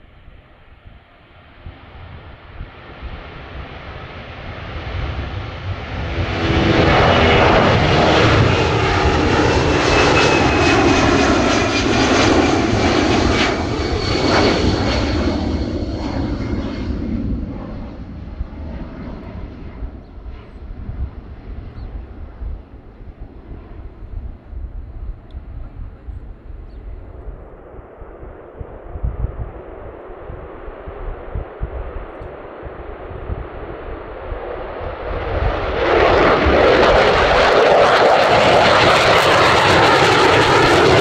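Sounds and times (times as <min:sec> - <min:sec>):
jet engines passing by: 0:00.0 - 0:41.0
jet whine sliding down in pitch: 0:06.4 - 0:19.9.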